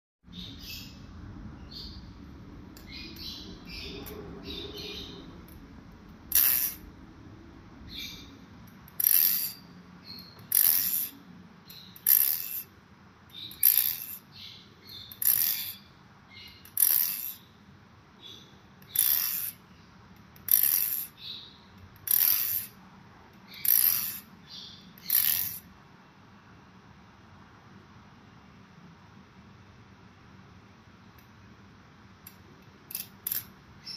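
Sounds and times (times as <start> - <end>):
butterfly knife handles clacking: 32.9 - 33.5.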